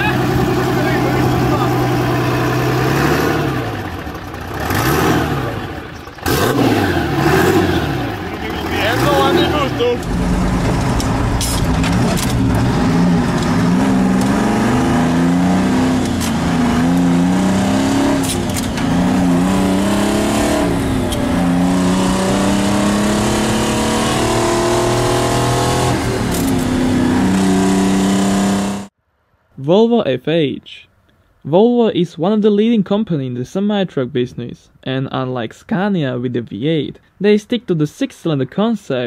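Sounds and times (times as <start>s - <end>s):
diesel truck engine shifting gears: 0.0s - 28.9s.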